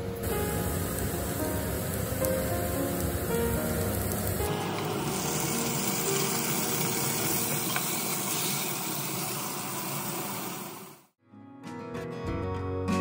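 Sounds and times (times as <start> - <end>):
background music: 0.0 - 7.7, 11.3 - 13.0
vegetables sizzling in hot oil: 0.2 - 11.1.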